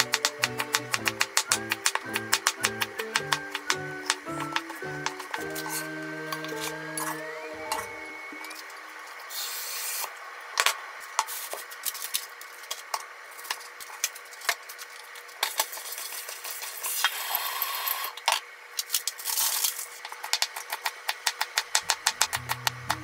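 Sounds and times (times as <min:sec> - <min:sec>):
knife chopping on wooden board: 0:00.0 - 0:07.9, 0:21.2 - 0:23.0.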